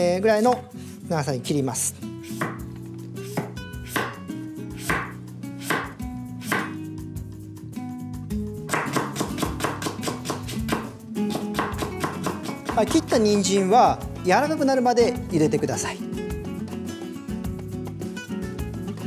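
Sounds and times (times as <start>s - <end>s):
knife chopping carrot on board: 2.2s - 6.8s, 8.7s - 13.4s.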